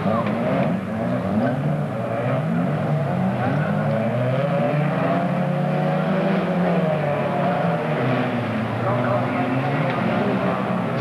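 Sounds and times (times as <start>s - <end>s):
race car engines revving: 0.0s - 11.0s.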